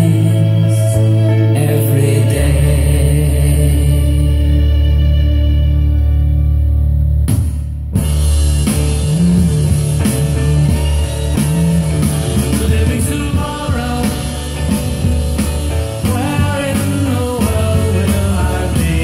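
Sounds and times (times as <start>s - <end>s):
rock track with drum beat: 7.1s - 19.0s.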